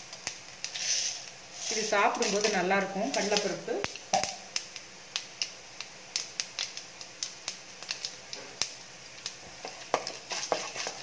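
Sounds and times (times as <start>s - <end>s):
spatula stirring in pan: 0.0s - 3.6s, 7.8s - 11.0s
seeds popping in hot oil: 0.0s - 11.0s.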